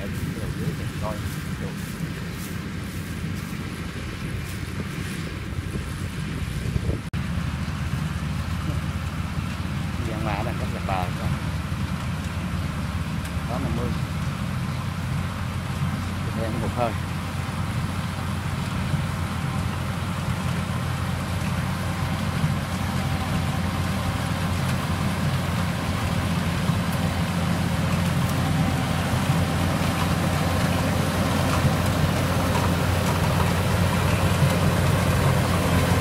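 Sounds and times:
combine harvester engine running: 0:00.0 - 0:36.0
threshing machinery rushing: 0:15.8 - 0:36.0.

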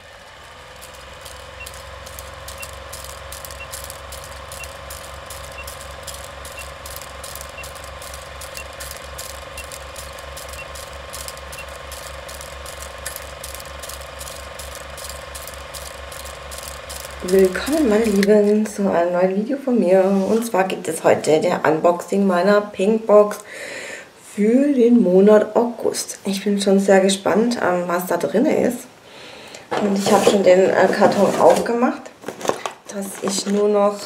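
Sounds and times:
film projector clatter: 0:00.0 - 0:18.8
low hum: 0:00.0 - 0:18.8
short high beeps: 0:01.6 - 0:12.4.

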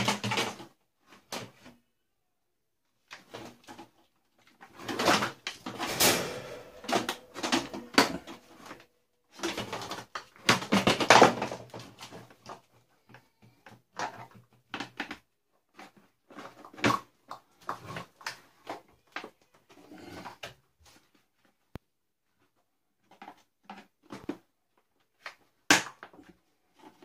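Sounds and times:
plastic parts knocking and clicking: 0:00.0 - 0:00.7, 0:09.4 - 0:19.4.

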